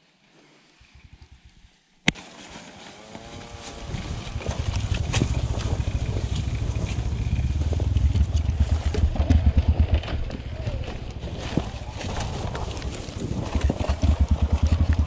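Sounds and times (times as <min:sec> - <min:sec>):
dirt bike engine: 0:02.1 - 0:15.0
bike knocks and rattles: 0:03.5 - 0:15.0.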